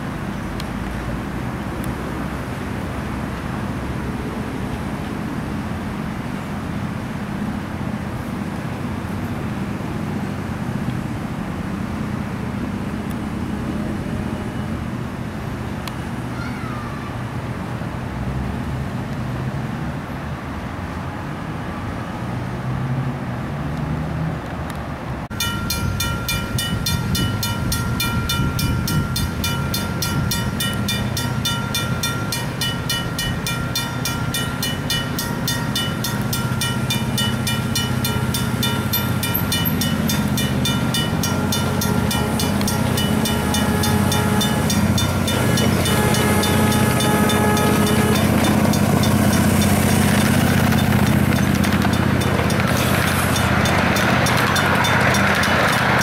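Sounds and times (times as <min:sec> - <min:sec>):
street traffic hum: 0:00.0 - 0:56.0
rapid even clicking on track: 0:48.2 - 0:56.0.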